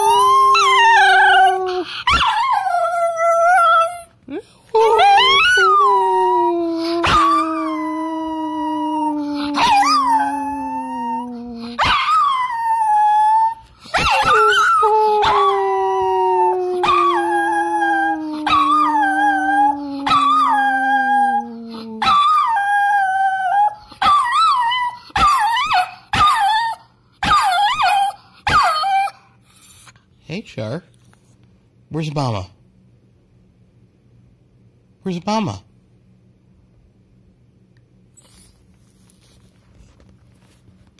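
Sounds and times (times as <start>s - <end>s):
dog howling: 0.0s - 4.1s, 4.7s - 29.1s.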